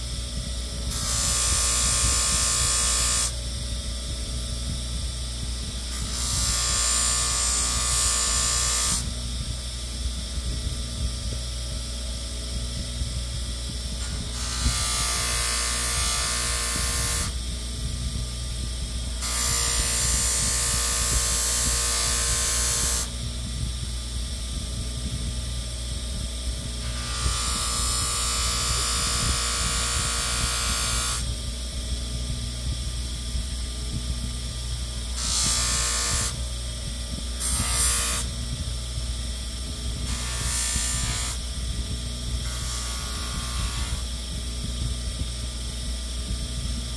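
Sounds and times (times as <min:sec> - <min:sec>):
power tool motor running: 0:00.9 - 0:03.4, 0:05.9 - 0:09.2, 0:14.0 - 0:17.4, 0:19.2 - 0:23.2, 0:26.8 - 0:31.4, 0:34.8 - 0:36.5, 0:37.3 - 0:38.4, 0:39.9 - 0:41.5, 0:42.4 - 0:44.2.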